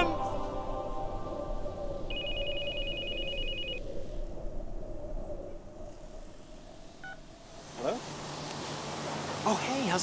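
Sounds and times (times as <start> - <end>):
mobile phone ringing: 2.1 - 3.8.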